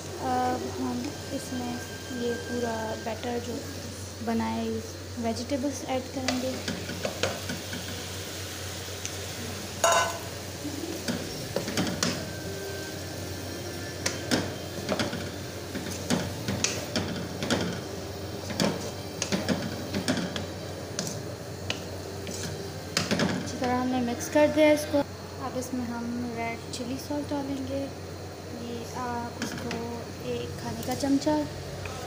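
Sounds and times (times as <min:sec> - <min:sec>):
spoon scraping frying pan: 0:22.2 - 0:23.3.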